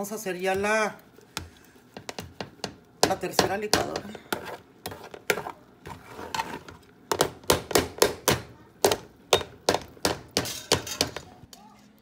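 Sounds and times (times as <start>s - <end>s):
spoon scraping a plastic strainer: 4.3s - 6.8s.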